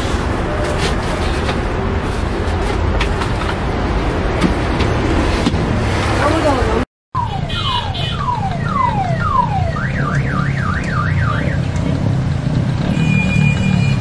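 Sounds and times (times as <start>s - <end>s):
car alarm tones: 7.2s - 11.6s
low street rumble: 8.2s - 14.0s.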